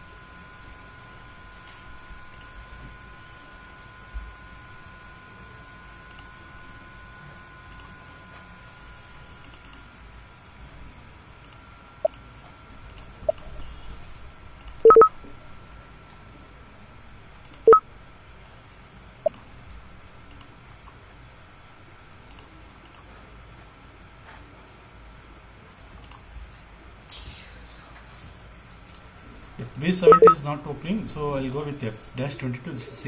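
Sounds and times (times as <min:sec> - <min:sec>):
short electronic beeps: 0:14.8 - 0:15.1, 0:30.0 - 0:30.4
faint mouse clicks: 0:22.3 - 0:23.1.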